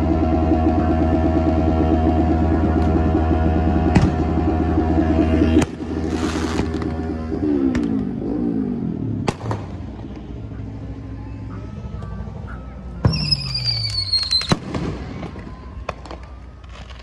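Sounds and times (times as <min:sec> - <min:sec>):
low sound falling in pitch: 0:00.0 - 0:16.6
firework bang: 0:13.0 - 0:16.2
firework whistle: 0:13.0 - 0:17.0.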